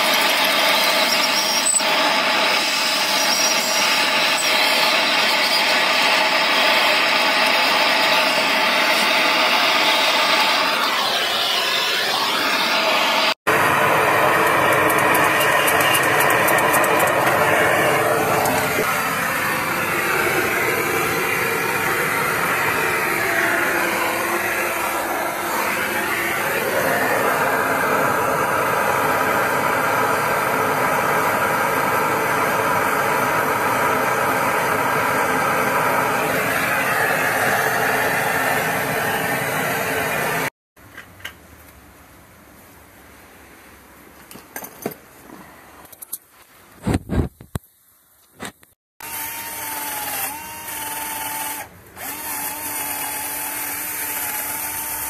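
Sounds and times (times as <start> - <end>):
gas torch hissing: 0.0 - 40.5.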